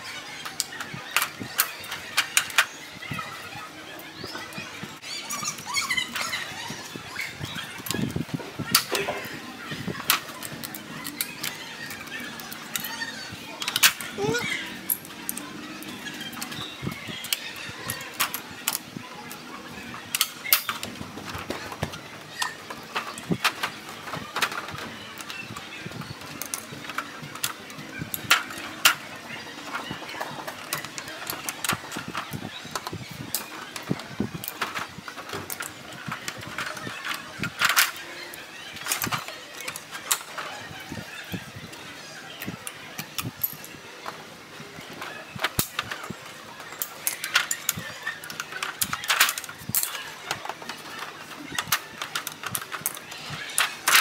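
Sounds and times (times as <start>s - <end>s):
pliers being handled: 45.0s - 54.0s.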